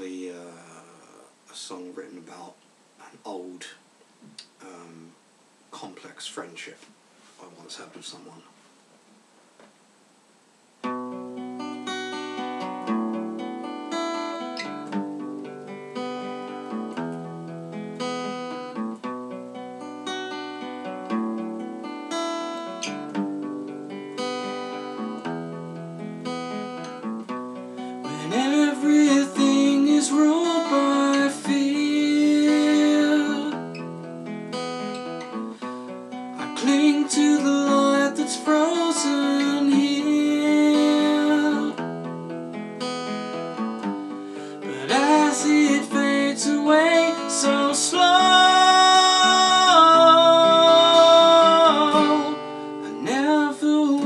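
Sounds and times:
acoustic guitar: 0.0s - 54.0s
man singing: 28.0s - 33.6s, 36.4s - 41.9s, 44.6s - 54.0s.

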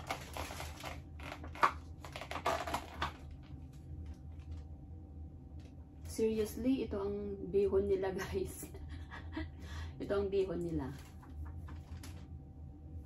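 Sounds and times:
plastic bag rustling: 0.0s - 4.7s, 10.9s - 12.3s.

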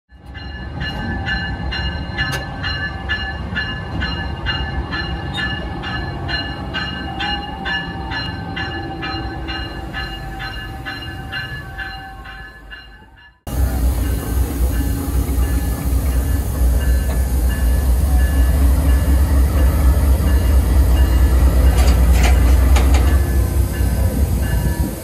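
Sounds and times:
train bell ringing: 0.1s - 25.0s
locomotive rumble and hum: 13.5s - 25.0s.

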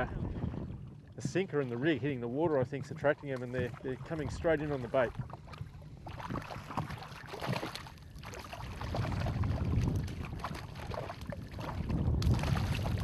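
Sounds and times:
water splashing: 0.7s - 13.0s
rush of moving water: 6.0s - 13.0s.

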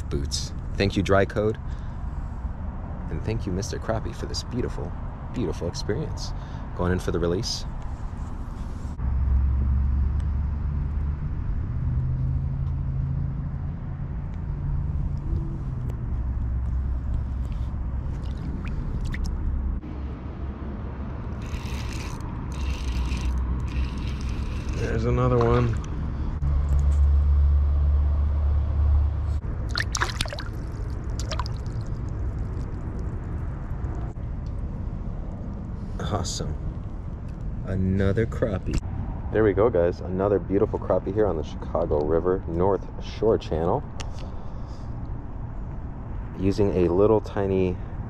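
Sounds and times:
distant road traffic rumble: 0.0s - 48.0s
fish splashing in water: 18.1s - 19.4s, 29.6s - 33.9s.

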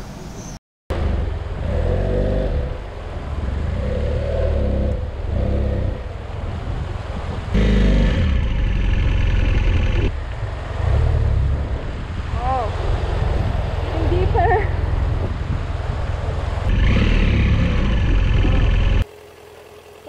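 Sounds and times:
motorcycle engine revving: 0.9s - 12.2s, 16.5s - 19.1s.

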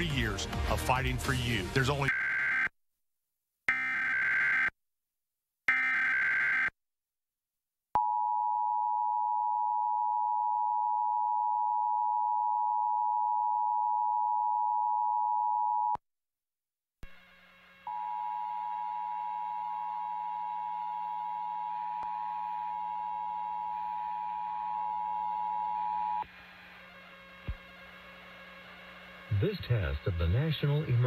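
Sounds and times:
background hiss and hum: 17.1s - 31.0s.

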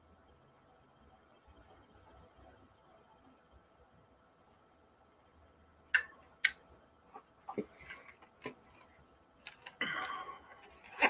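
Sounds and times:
packaging rustling: 10.5s - 11.0s.

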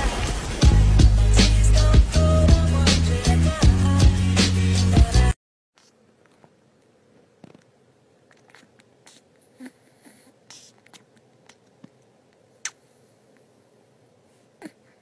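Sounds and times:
small clicks and soft rustles: 5.8s - 9.5s.

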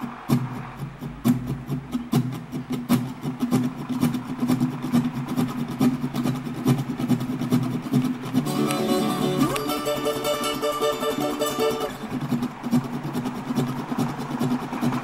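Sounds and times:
locomotive engine drone: 0.0s - 2.6s, 8.1s - 15.0s
stringed music: 4.3s - 15.0s.

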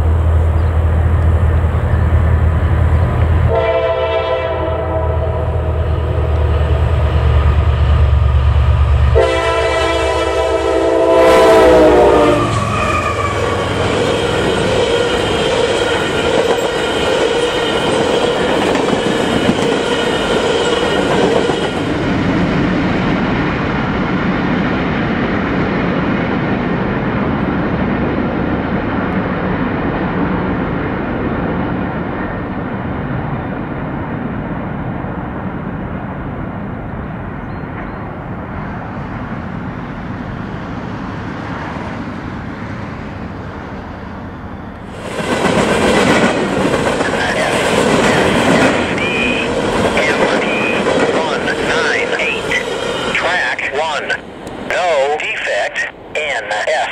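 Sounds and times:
diesel locomotive rumbling: 0.0s - 56.9s
train air horn: 3.5s - 5.6s, 9.1s - 15.3s
freight cars rolling on rails: 12.5s - 28.0s, 39.0s - 55.6s.

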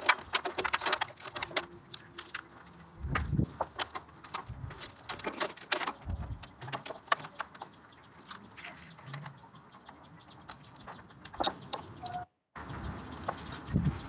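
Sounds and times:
small parts clicking and rattling: 0.0s - 12.2s.

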